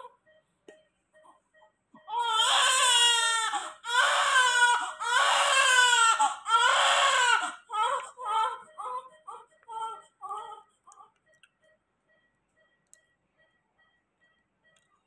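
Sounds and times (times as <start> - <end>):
newborn baby crying: 2.1 - 11.1.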